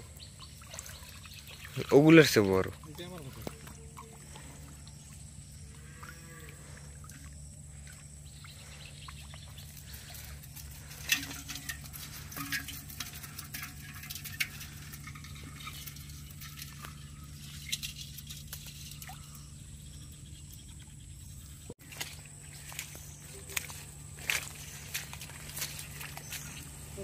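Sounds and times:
water dripping: 0.0s - 19.7s
steady low hum: 0.0s - 27.0s
fish tapping against metal pot: 11.0s - 16.0s.

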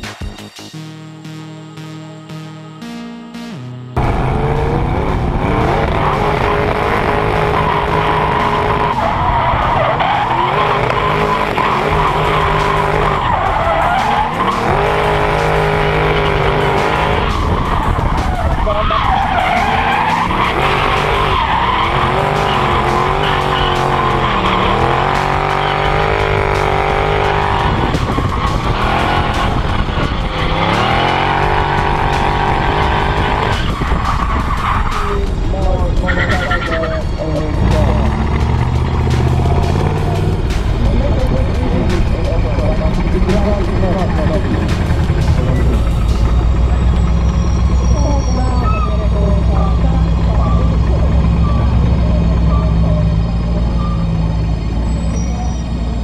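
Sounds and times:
car engine revving: 0.8s - 56.0s
tyres screeching: 4.0s - 56.0s.

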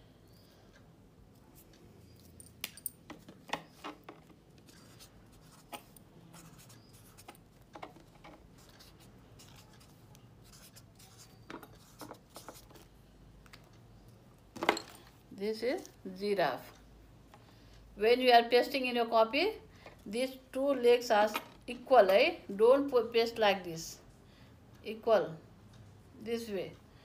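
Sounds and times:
marker scratching on paper: 4.6s - 7.4s, 8.5s - 12.8s.

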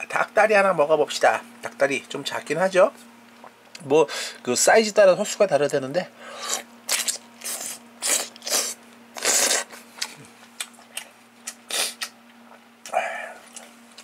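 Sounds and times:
wet chewing and slurping: 6.4s - 14.0s.

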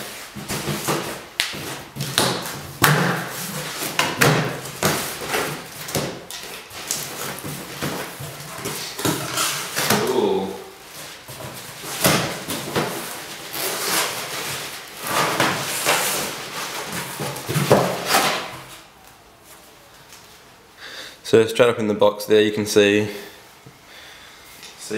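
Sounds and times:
cardboard flaps scraping and rustling: 0.0s - 18.9s.

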